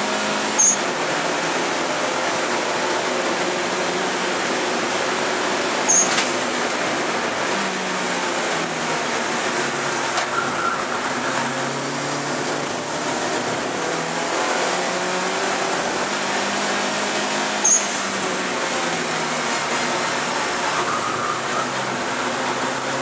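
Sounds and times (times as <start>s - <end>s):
race car engine at speed: 0.0s - 23.0s
road and wind noise: 0.0s - 23.0s
sharp high click: 5.9s - 6.4s.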